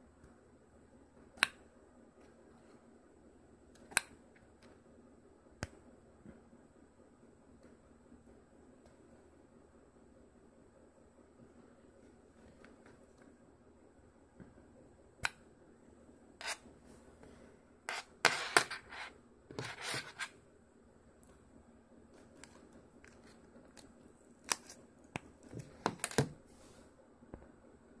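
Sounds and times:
adapter scraping on hard surface: 16.4 - 16.7, 17.9 - 20.4.

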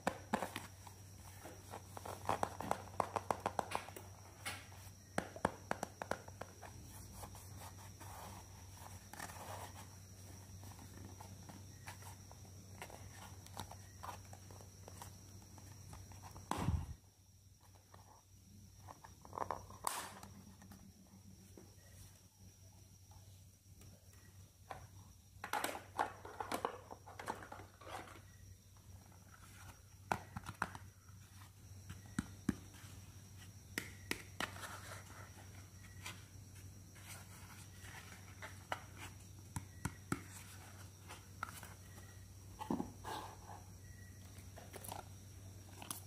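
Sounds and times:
faint steady hum: 0.0 - 46.0.

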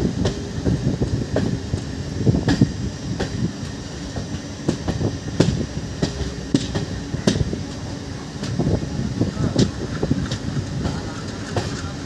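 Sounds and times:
train rumble: 0.0 - 12.0
wheels clacking over rails: 9.3 - 12.0.

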